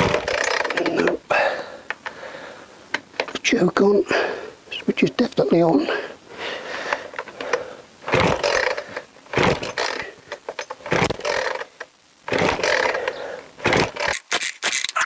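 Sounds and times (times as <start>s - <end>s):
chainsaw engine cranking: 0.0s - 1.2s, 7.4s - 15.0s
starter cord yanked: 0.0s - 1.2s, 13.6s - 15.0s.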